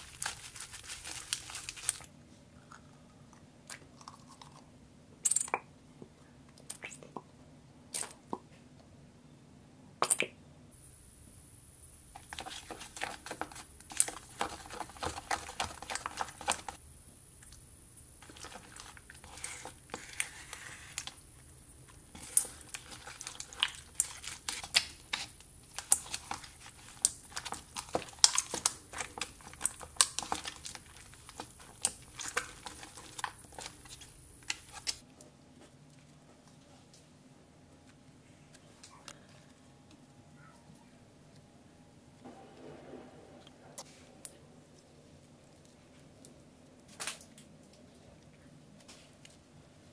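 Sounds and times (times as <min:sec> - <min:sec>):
slime squelching and crackling: 0:00.0 - 0:02.1, 0:12.1 - 0:35.1
spatula scraping plastic cup: 0:12.2 - 0:16.8, 0:18.2 - 0:21.2.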